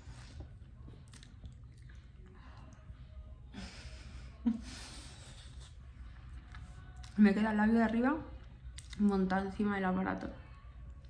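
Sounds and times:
woman breathing and eating: 0.0 - 7.0.

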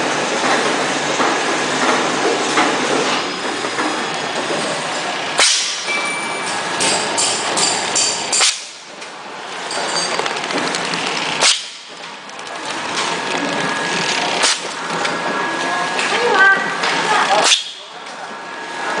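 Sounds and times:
packing machine clatter: 0.0 - 15.4
sharp machine clacks: 0.4 - 8.9, 9.6 - 14.8.

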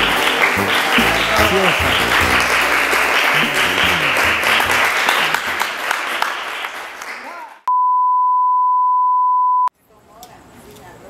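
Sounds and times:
applause in a large hall: 0.0 - 7.7.

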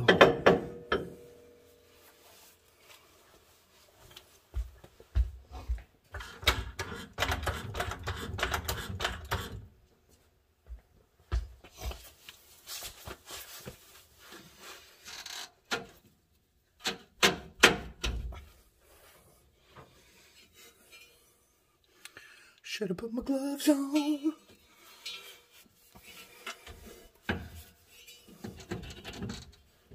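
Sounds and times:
metal clicks rattles and knocks: 28.4 - 29.7.

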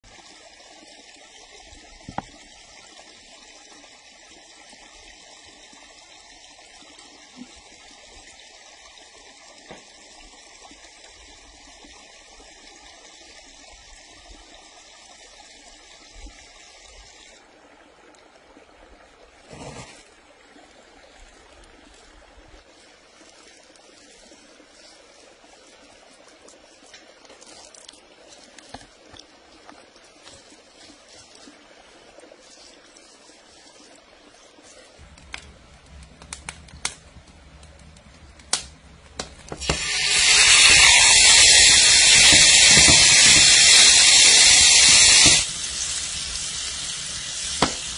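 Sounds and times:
steady watery hiss: 0.1 - 17.6, 19.0 - 47.9
oil trickling: 20.0 - 47.9
wood fire crackling: 35.0 - 47.9.

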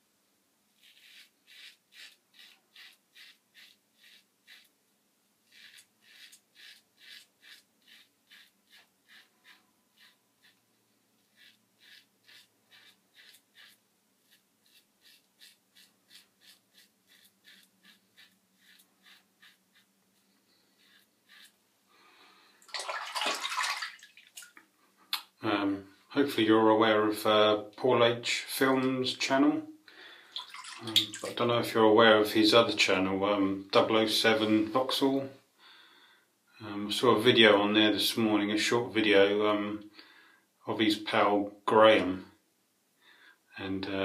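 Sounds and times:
razor scraping stubble: 0.8 - 4.7, 5.4 - 21.6
rush of water: 22.7 - 24.5.

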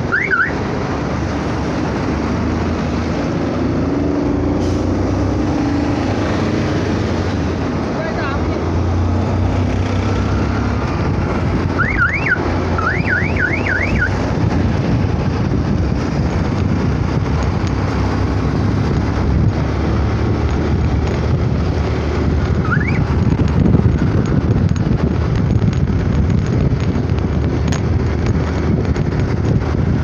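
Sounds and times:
motorcycle engine: 0.0 - 30.0
road noise: 0.0 - 30.0
wind buffeting: 0.0 - 30.0
siren horn whoops: 0.1 - 0.6, 11.8 - 14.2, 22.6 - 23.0.

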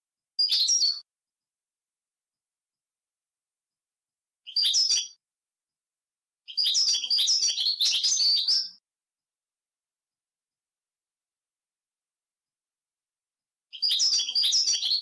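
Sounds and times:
goldfinch twittering song: 4.5 - 5.2, 6.5 - 8.8, 13.7 - 15.0.

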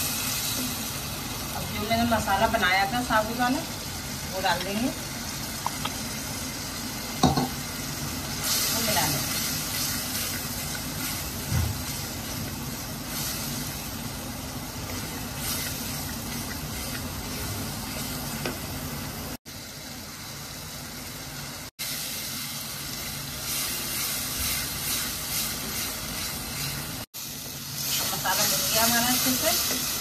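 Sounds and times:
masala sizzling in a pan: 0.0 - 30.0
spatula stirring in pan: 23.1 - 30.0.

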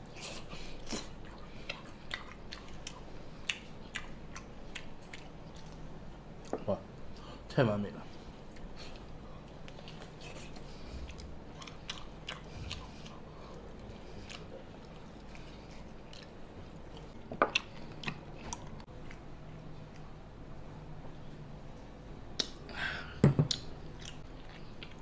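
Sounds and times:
chewing and biting: 0.3 - 6.5, 8.5 - 20.1.

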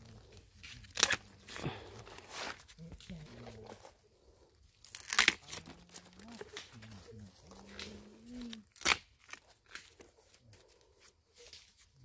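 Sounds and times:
dry leaves and sticks crunching: 0.0 - 12.0
stick snapping: 7.7 - 10.0.

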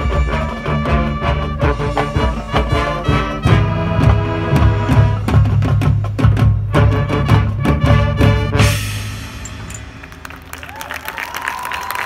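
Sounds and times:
band music: 0.0 - 11.6
crowd applauding: 9.9 - 12.0.

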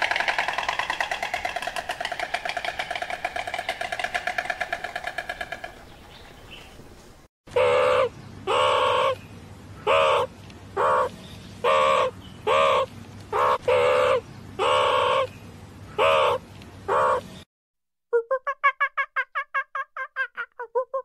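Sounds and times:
meerkats giving harsh calls: 7.5 - 9.2, 9.8 - 15.3, 15.9 - 17.3.

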